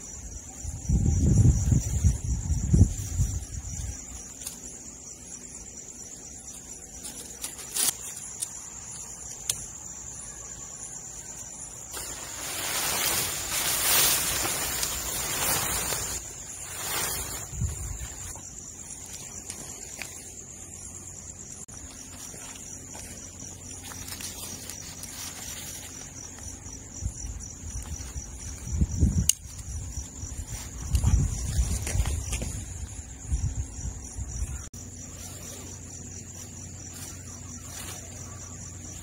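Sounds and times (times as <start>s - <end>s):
crickets chirring: 0.0s - 39.0s
tent fabric rustling: 11.9s - 20.0s.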